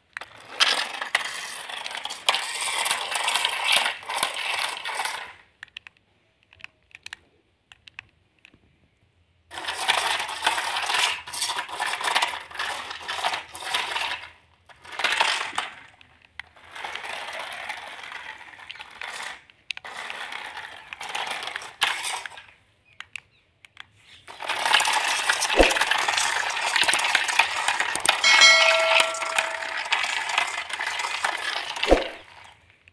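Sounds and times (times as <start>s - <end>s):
toy car wheels rattling on concrete: 0.0s - 5.8s, 9.5s - 23.2s, 24.1s - 28.3s, 29.3s - 32.9s
short chime: 28.2s - 30.2s.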